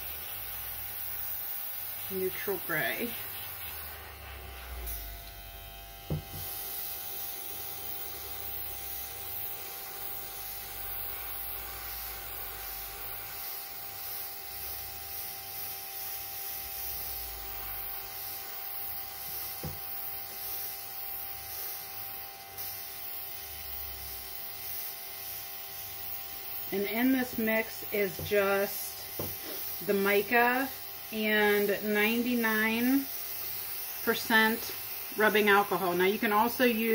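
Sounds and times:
airbrush hissing: 0.0 - 36.9
soft thump: 6.1 - 6.5.

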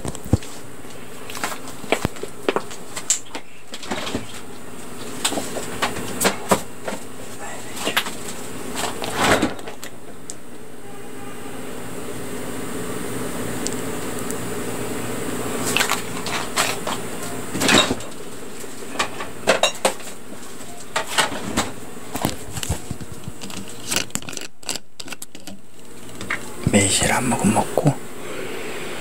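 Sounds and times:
crackles of food being eaten: 0.0 - 6.2, 15.4 - 17.2, 22.0 - 27.9
steady hum: 0.0 - 29.0.

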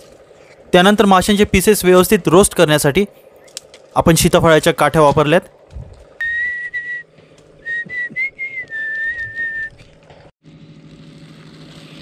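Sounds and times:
person whistling a tune: 6.2 - 9.8.

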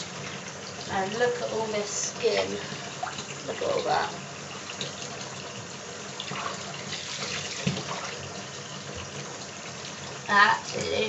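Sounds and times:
tap running into bathtub: 2.2 - 11.0.

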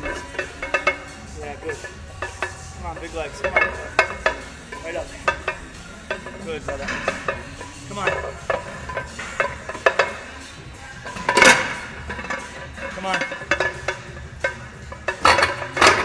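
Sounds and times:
metal clicks and clanks: 1.7 - 16.0.

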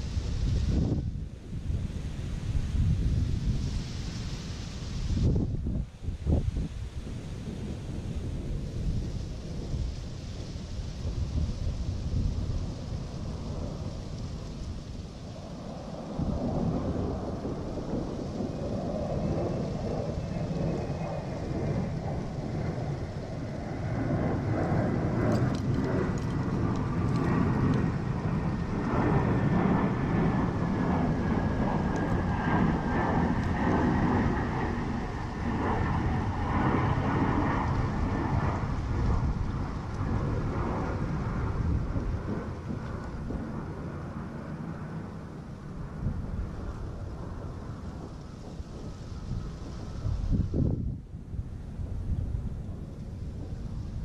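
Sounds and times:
wind buffeting microphone: 0.0 - 54.0.

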